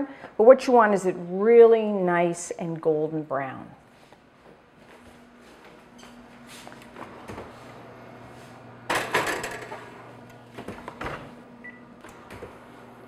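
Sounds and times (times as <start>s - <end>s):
oven door clatter: 8.9s - 11.4s
oven control panel beep: 11.5s - 12.4s.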